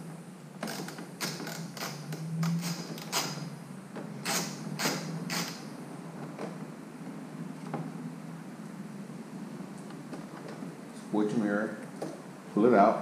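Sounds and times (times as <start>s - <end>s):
tools clicking and knocking: 4.2s - 5.6s.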